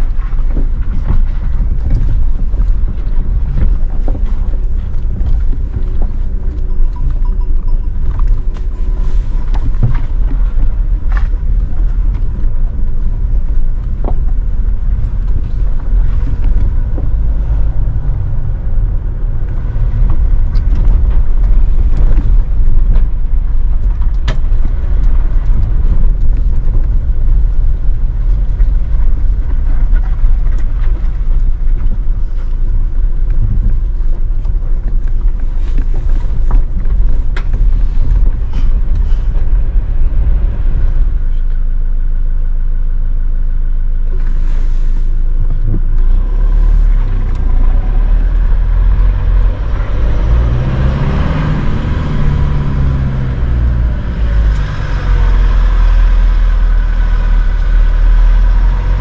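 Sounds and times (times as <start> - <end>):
engine and tyres rumbling: 0.0 - 59.0.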